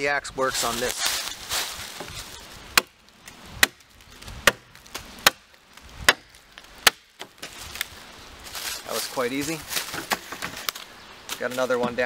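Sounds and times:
axe chopping wood: 2.8s - 3.0s, 3.6s - 7.6s.

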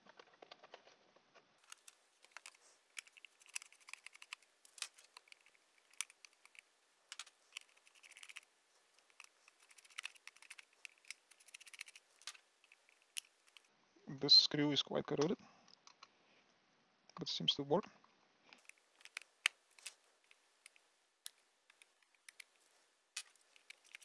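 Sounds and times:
screwdriver clicks and scrapes: 1.6s - 13.7s, 18.6s - 24.0s.

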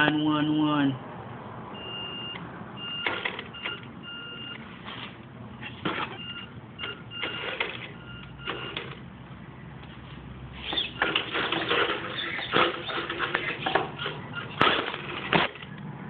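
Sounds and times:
toy car drivetrain whirs and clicks: 10.6s - 15.8s.

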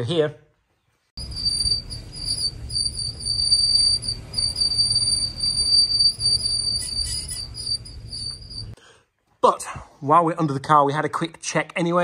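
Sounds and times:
brake scraping squeal: 1.2s - 8.8s
low rumble: 1.2s - 8.8s.

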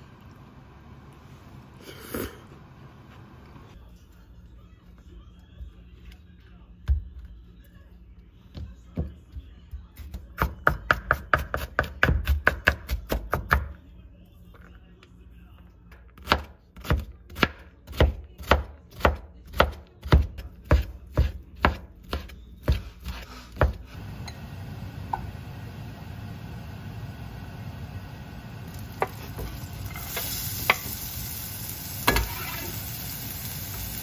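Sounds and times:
knife chopping on cutting board: 10.4s - 13.8s, 16.2s - 23.8s.

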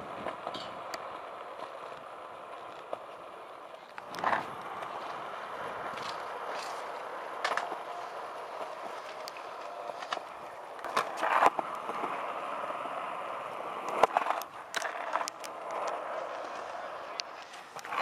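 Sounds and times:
skateboard wheels rolling on concrete: 0.0s - 18.0s
skateboards clacking on ground: 0.0s - 18.0s.

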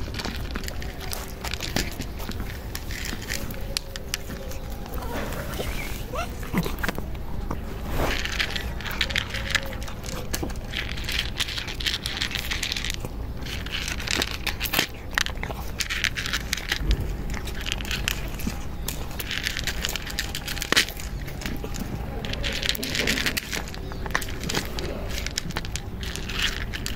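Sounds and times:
cat crunching dry kibble: 0.0s - 26.9s.

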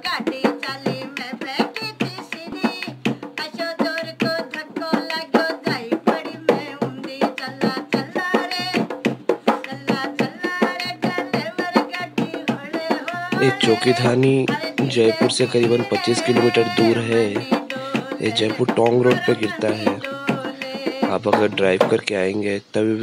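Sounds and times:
person singing: 0.0s - 22.1s
hand drum quick strokes: 0.1s - 22.1s.

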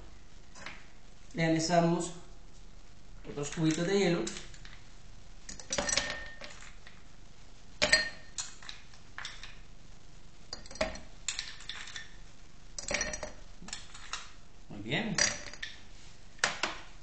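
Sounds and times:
ice cubes clinking in glass: 10.5s - 12.2s, 12.8s - 14.3s.

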